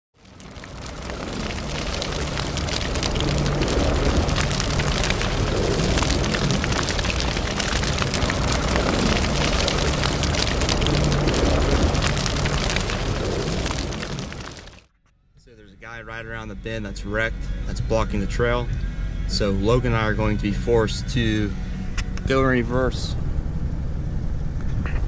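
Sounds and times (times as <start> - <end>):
crackling of tyres on slush: 0.1 - 14.8
truck engine and tyre noise: 0.2 - 14.8.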